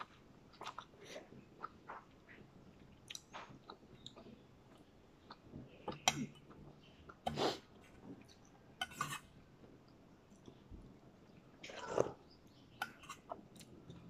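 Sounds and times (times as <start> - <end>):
person chewing with wet clicks: 0.0 - 14.0.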